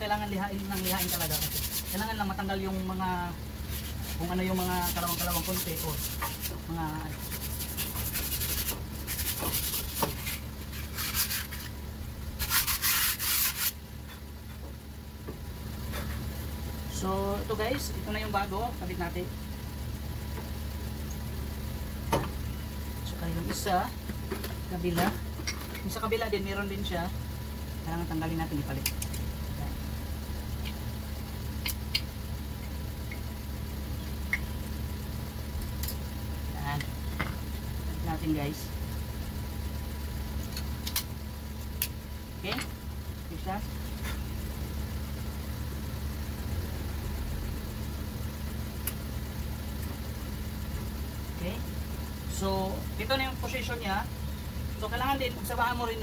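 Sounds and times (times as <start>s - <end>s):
low motor hum: 0.0s - 56.0s
sandpaper scraping metal disc: 0.4s - 2.5s, 3.6s - 13.8s.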